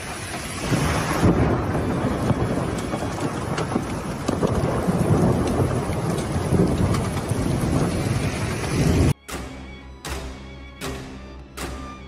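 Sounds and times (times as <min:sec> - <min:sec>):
heavy rain pouring: 0:00.0 - 0:09.2
low thunder rumble: 0:00.2 - 0:09.2.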